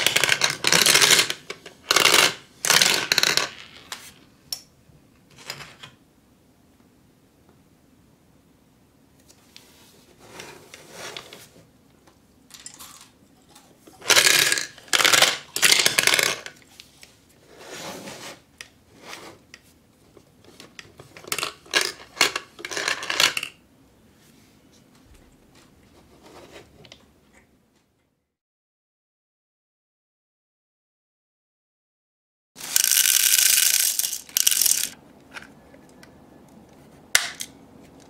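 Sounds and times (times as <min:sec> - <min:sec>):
candy balls rattling in plastic dispenser: 0:00.0 - 0:03.9, 0:14.0 - 0:16.6, 0:21.0 - 0:23.6, 0:32.6 - 0:35.0.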